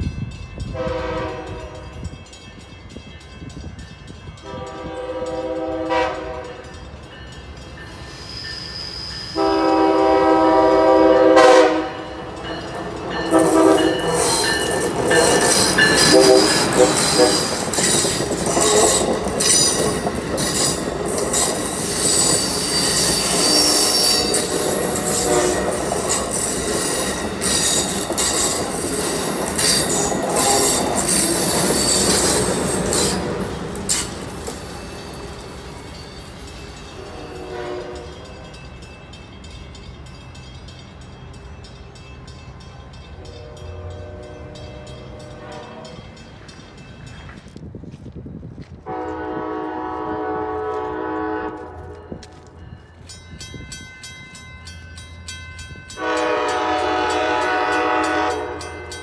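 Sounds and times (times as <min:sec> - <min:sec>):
train rushing past on rails: 0:00.0 - 0:59.0
distant train horn: 0:00.7 - 0:02.1, 0:04.4 - 0:06.8, 0:09.2 - 0:12.6, 0:13.2 - 0:19.2, 0:22.8 - 0:26.2, 0:29.0 - 0:33.4, 0:37.0 - 0:38.3, 0:43.1 - 0:46.2, 0:48.8 - 0:52.6, 0:56.0 - 0:59.0
wheels clicking on track: 0:12.0 - 0:49.2.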